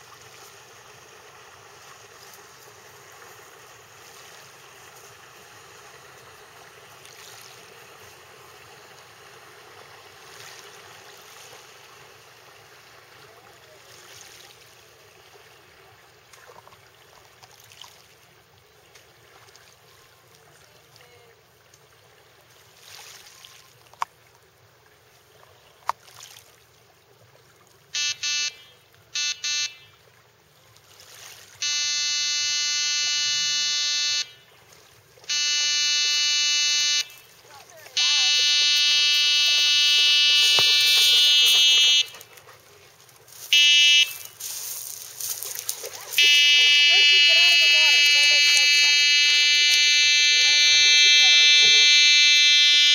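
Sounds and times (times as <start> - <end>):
wind and water wash: 0.0 - 28.0, 37.0 - 46.6
boat horn blasts: 27.9 - 30.1, 31.6 - 34.6, 35.2 - 37.3, 37.9 - 42.3, 43.5 - 44.4, 46.2 - 52.9.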